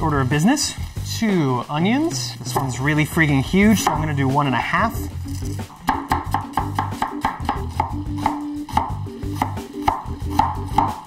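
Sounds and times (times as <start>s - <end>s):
knife chopping on wooden board: 3.8s - 4.1s, 5.8s - 11.0s.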